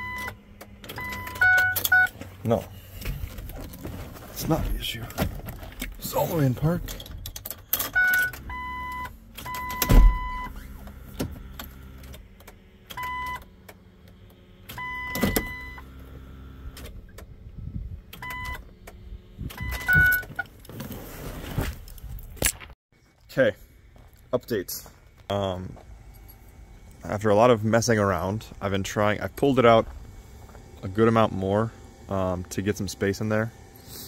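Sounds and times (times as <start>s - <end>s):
electronic warning beeps: 0.0s - 2.1s, 7.9s - 10.6s, 13.0s - 13.5s, 14.8s - 15.9s, 18.2s - 18.6s, 19.6s - 20.4s.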